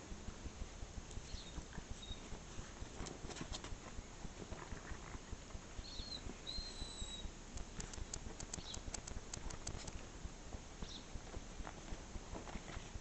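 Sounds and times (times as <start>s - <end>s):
puppy high-pitched peeps: 5.8s - 9.9s
puppy claws clicking on paving: 7.1s - 10.1s.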